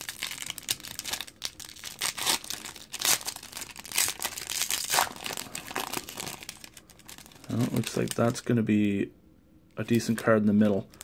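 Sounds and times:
foil wrapper tearing and crinkling: 0.0 - 8.4.

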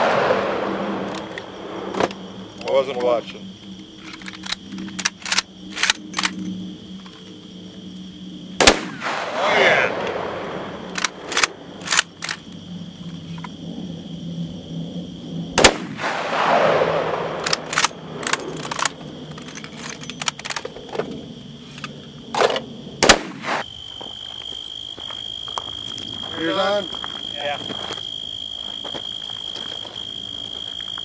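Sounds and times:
gunshots: 0.0 - 2.1, 8.6 - 12.1, 15.6 - 19.0, 22.4 - 23.6
gunshot echo: 8.6 - 10.7, 15.6 - 17.7, 23.0 - 23.6.

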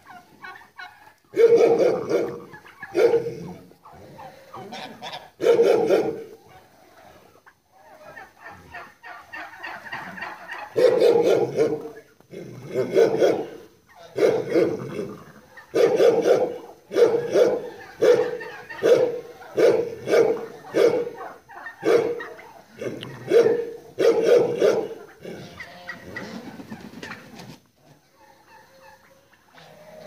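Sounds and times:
animal calling: 7.9 - 27.1.

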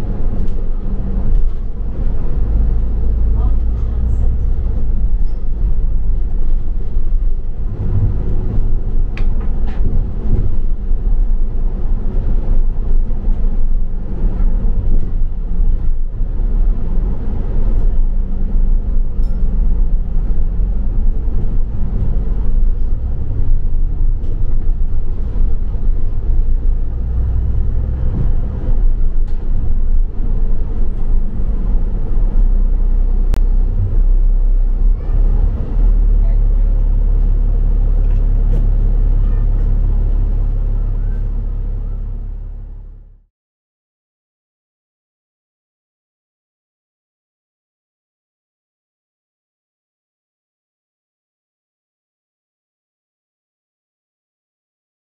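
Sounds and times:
bus engine rumbling: 0.0 - 43.3.

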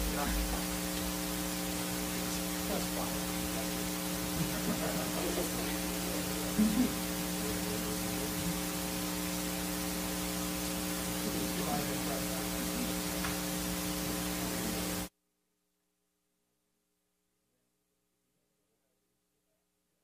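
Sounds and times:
electrical mains hum and hiss: 0.0 - 15.1.

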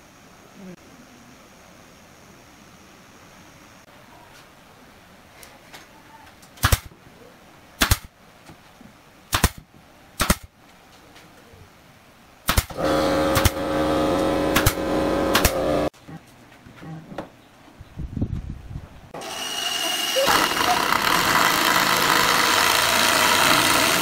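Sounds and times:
nail gun firing: 6.6 - 6.9, 7.8 - 8.1, 9.3 - 9.6, 10.2 - 10.5, 12.4 - 15.9
air compressor humming: 12.8 - 15.9.

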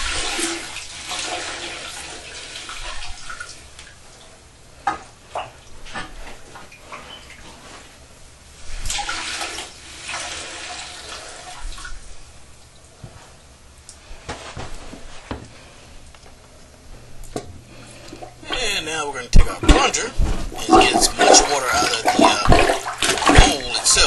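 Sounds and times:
water splashing and trickling: 19.7 - 24.0.

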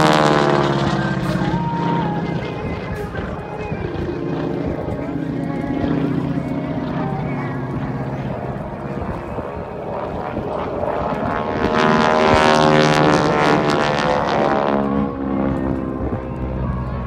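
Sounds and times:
propeller aircraft engine: 0.0 - 17.0.

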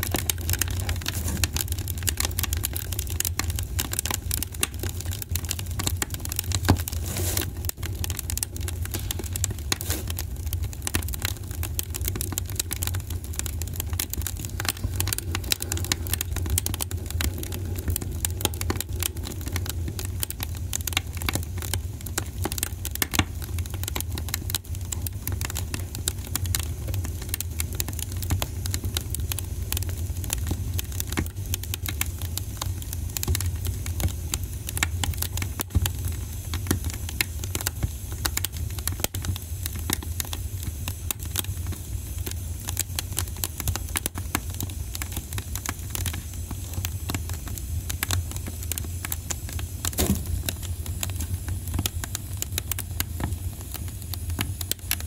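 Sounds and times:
rustling and crackling: 0.6 - 1.8, 6.5 - 7.8.

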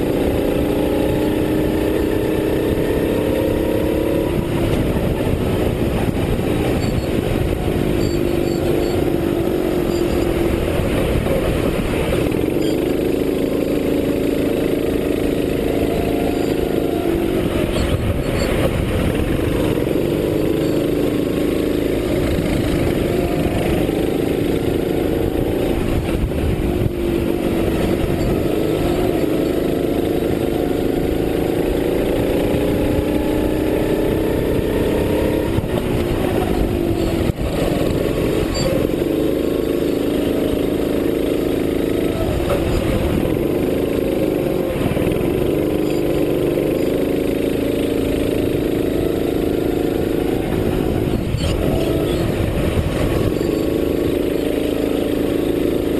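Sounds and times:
kart engine under load: 0.0 - 55.9.

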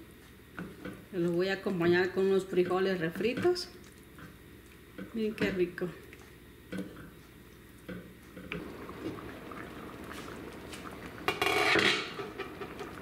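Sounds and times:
sauce bubbling and popping: 6.0 - 13.0.

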